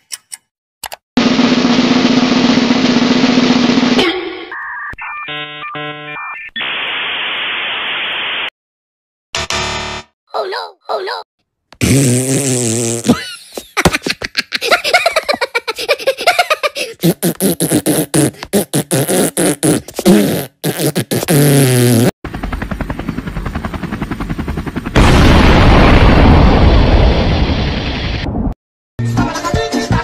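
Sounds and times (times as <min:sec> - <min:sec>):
cartoon voice chattering gibberish: 0:10.3 - 0:11.3
cartoon explosion sound effect: 0:25.0 - 0:28.6.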